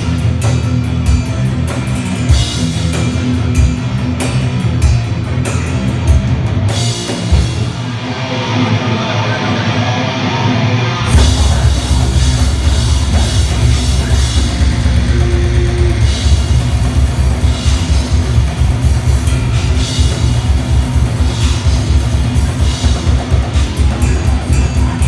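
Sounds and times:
drum kit with cymbals: 0.0s - 9.9s, 11.0s - 25.0s
distorted electric guitars: 0.0s - 25.0s
rapid kick drum beat: 11.1s - 25.0s.

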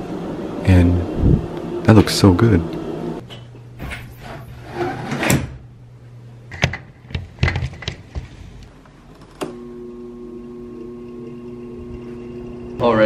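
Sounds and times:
air conditioner humming: 0.0s - 13.0s.

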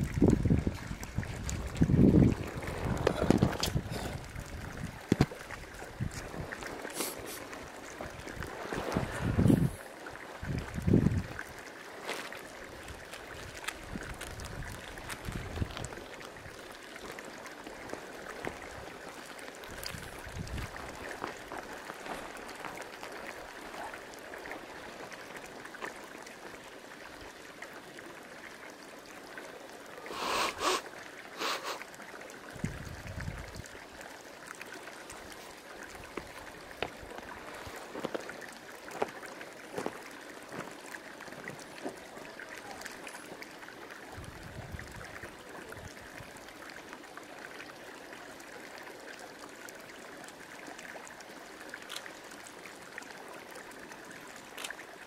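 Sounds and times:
hot spring bubbling and gurgling: 0.0s - 55.0s.

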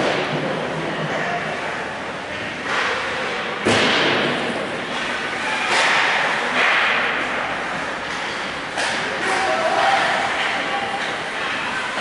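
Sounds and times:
ice rink echo: 0.0s - 12.0s
hockey sticks cracking on puck: 4.9s - 12.0s.

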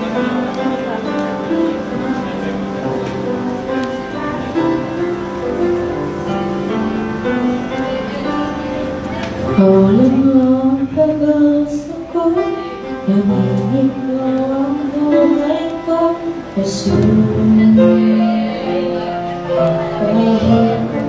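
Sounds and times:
instrumental accompaniment: 0.0s - 21.0s
woman singing into microphone: 7.5s - 21.0s.

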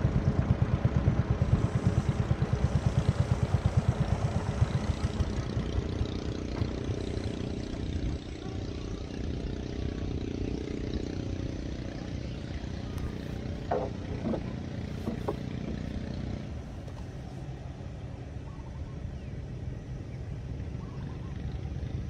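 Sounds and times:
boat engine running: 0.0s - 22.0s.

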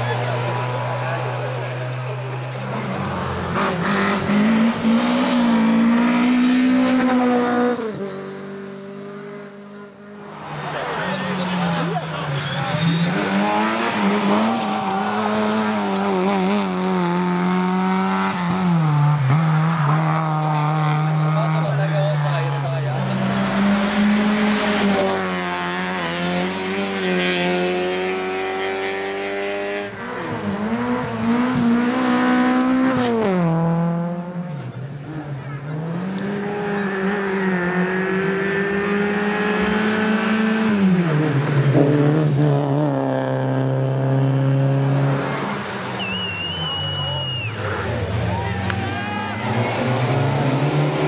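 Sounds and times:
rally car engines revving: 0.0s - 51.0s
high squeal: 46.0s - 47.8s.

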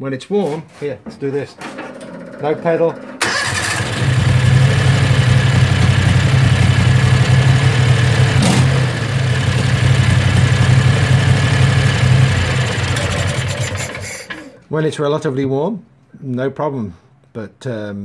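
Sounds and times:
engine idling: 3.2s - 14.5s.

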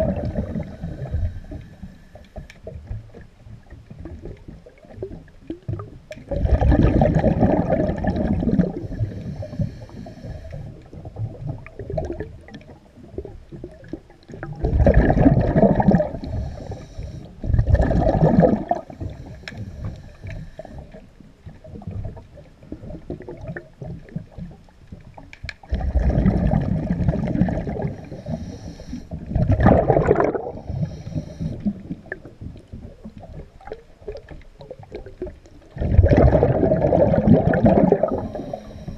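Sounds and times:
exhaled air bubbles gurgling: 0.0s - 38.9s
underwater water noise: 0.0s - 38.9s.

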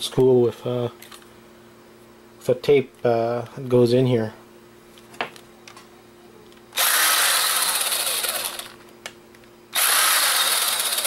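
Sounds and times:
cordless driver spinning: 6.8s - 8.8s, 9.8s - 11.0s.

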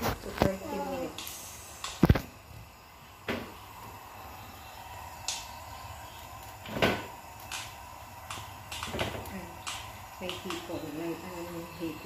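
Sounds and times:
low steady background noise: 0.0s - 12.0s.

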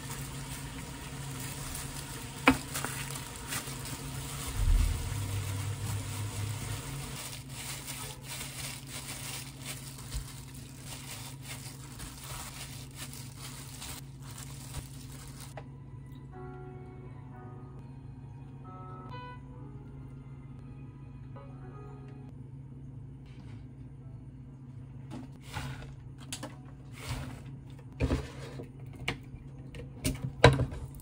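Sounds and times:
plastic gloves crinkling: 0.0s - 15.6s.

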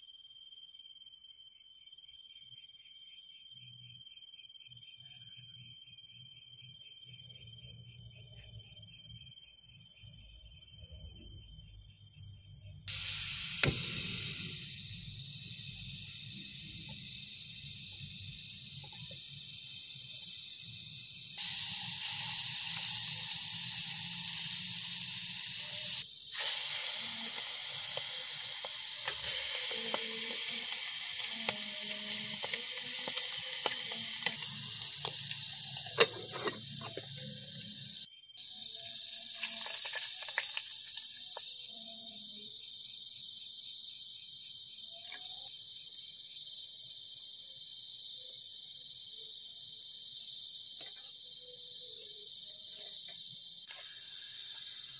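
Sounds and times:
insects chirring: 0.0s - 54.9s
butter sizzling in a pot: 12.9s - 42.3s, 52.6s - 54.9s
spoon scraping and tapping pot: 35.8s - 37.2s.

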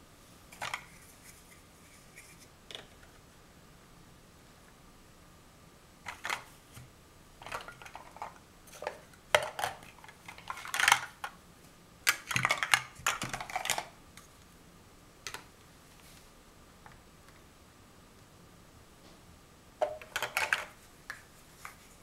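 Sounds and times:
plastic blocks clattering and clicking: 6.1s - 6.5s, 7.4s - 11.4s, 12.1s - 14.0s, 19.8s - 21.2s.

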